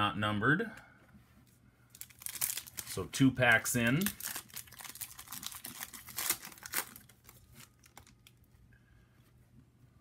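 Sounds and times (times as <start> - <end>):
card pack wrapper tearing and crinkling: 1.9 - 8.4.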